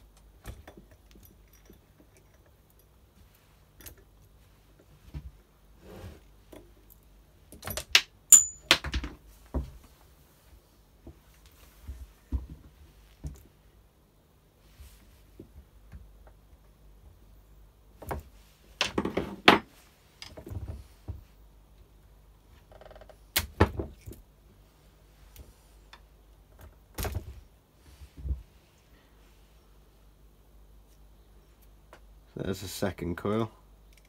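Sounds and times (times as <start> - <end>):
tools and parts clicking and clattering: 0.2 - 3.0, 6.5 - 9.2.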